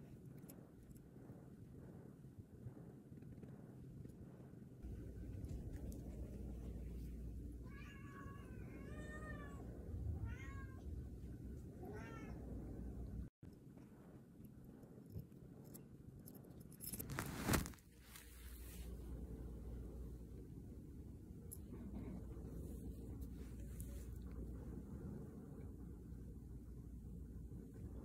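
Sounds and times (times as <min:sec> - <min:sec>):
cat meowing: 0:10.2 - 0:10.8, 0:11.8 - 0:12.4.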